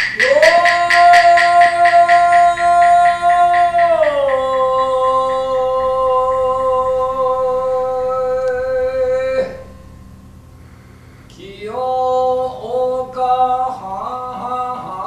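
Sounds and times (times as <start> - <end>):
evenly spaced clicks: 0.0 - 4.5
man chanting long note: 0.2 - 10.0.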